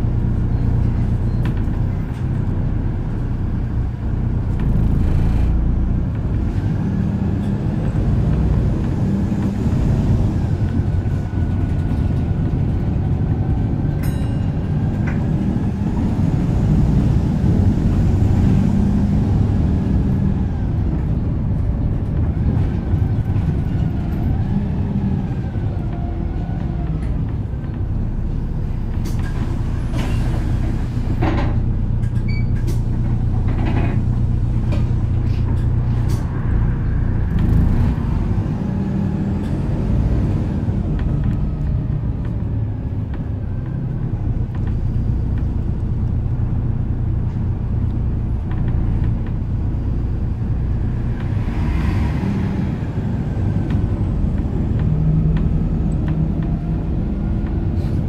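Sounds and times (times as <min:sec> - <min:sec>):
bus diesel engine running: 0:00.0 - 0:58.0.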